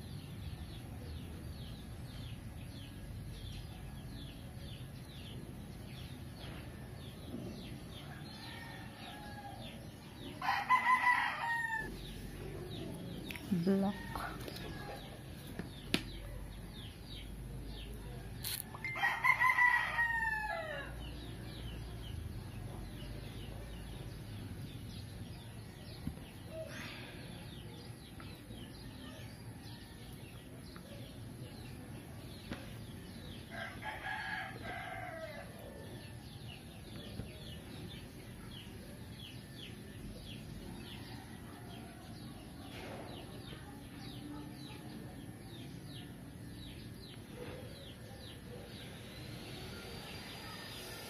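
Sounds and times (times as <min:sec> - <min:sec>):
rooster crowing: 0:10.4 - 0:12.0, 0:18.9 - 0:21.0, 0:33.5 - 0:35.8.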